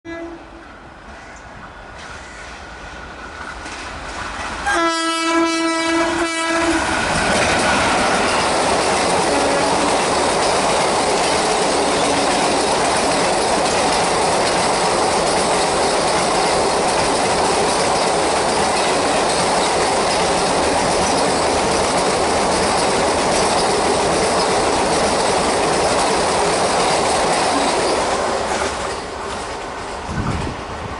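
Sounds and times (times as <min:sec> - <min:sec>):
wheels rushing on rails: 0:01.8 - 0:30.9
locomotive horn blast: 0:04.6 - 0:06.9.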